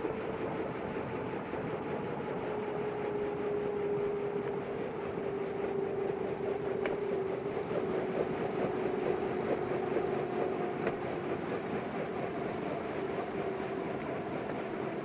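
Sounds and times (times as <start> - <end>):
helicopter engine hum and whine: 0.0 - 15.0.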